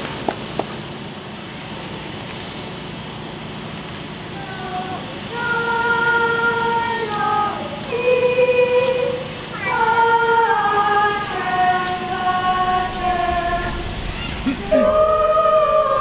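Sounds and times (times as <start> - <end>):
children's choir singing: 4.2 - 16.0.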